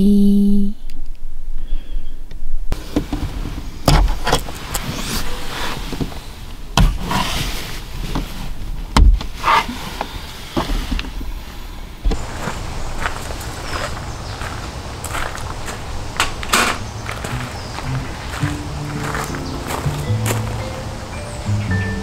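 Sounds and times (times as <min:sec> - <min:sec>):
dull knocks and thumps: 0:02.8 - 0:04.5, 0:06.8 - 0:07.1, 0:08.9 - 0:09.4
bedding and clothes rustling: 0:02.8 - 0:11.3, 0:12.1 - 0:20.6.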